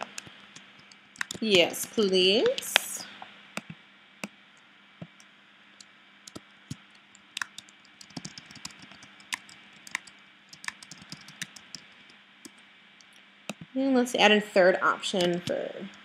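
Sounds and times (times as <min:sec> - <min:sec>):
typing on computer keyboard: 0:00.0 - 0:01.4, 0:07.2 - 0:12.2.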